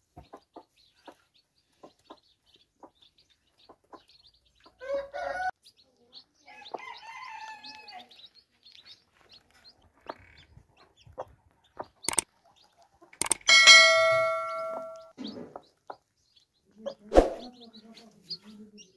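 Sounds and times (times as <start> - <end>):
beaks ticking on floor: 0.0 - 18.9
chicks peeping: 0.0 - 18.9
hen clucking: 0.1 - 5.5, 9.6 - 16.1
sharp clicks: 12.0 - 12.3, 13.2 - 13.7
ringing bell chime: 13.5 - 15.1.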